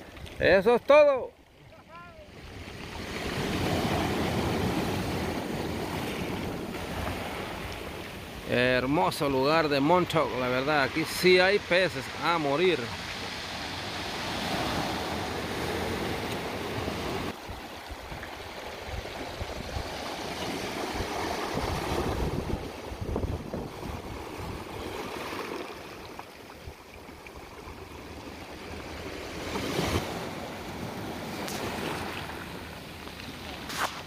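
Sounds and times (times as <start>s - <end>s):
waves breaking on pebble beach: 0.0s - 26.7s, 27.4s - 34.0s.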